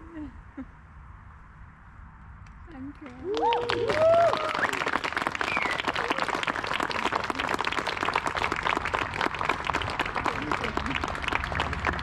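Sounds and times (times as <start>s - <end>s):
crowd applauding: 3.1s - 12.0s
whoops and cheers: 3.2s - 6.2s.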